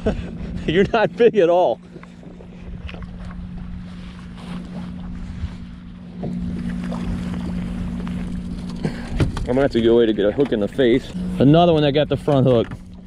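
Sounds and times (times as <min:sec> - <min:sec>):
boat motor humming: 0:00.0 - 0:13.0
wind noise on microphone: 0:05.2 - 0:05.8.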